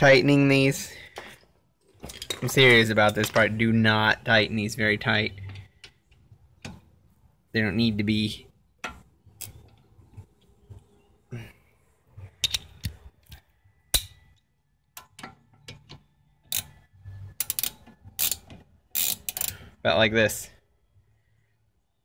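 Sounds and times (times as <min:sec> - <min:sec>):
socket ratchet clicking: 0:17.3 - 0:19.6.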